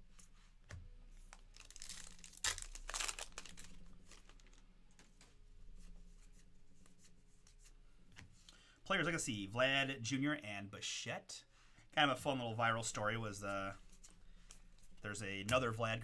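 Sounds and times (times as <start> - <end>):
cards rustling: 1.1 - 5.4
wrapper tearing and crinkling: 1.5 - 4.6.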